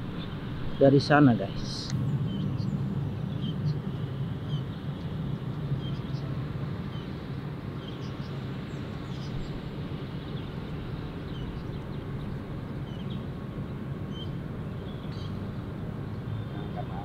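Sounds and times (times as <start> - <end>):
bird chirps: 16.1 - 17.0.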